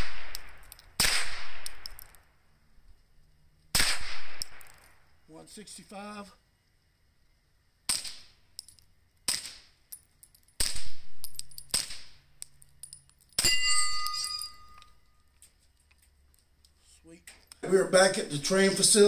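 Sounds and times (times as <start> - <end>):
suppressed gunshots: 0.0 - 2.0, 3.7 - 4.8, 9.2 - 9.7
high metallic ringing: 12.6 - 15.4.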